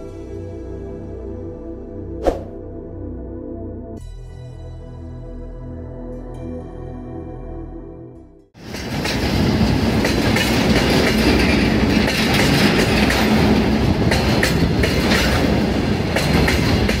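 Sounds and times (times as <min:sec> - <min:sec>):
freight train wagons rumbling: 0:08.6 - 0:17.0
wheels clicking over rail joints: 0:08.6 - 0:17.0.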